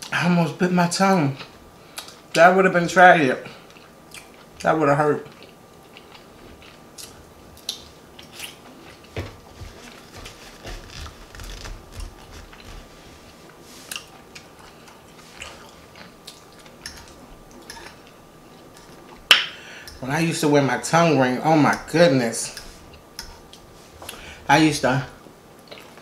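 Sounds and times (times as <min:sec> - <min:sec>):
person chewing food: 0:03.6 - 0:04.6, 0:05.2 - 0:20.0, 0:25.6 - 0:26.0.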